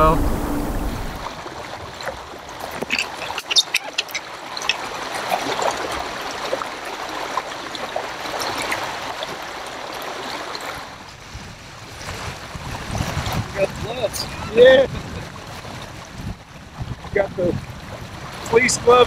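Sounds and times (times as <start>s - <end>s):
river current rushing: 0.0s - 3.2s
water trickling and splashing: 0.0s - 19.0s.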